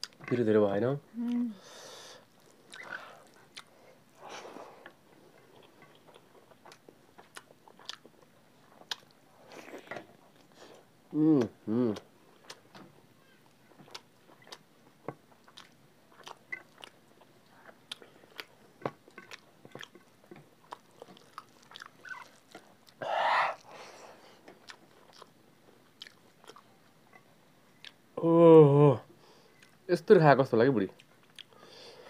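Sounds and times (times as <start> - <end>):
chewing and lip-smacking: 2.3 - 3.8, 4.8 - 10.8, 11.4 - 28.0, 31.0 - 31.7.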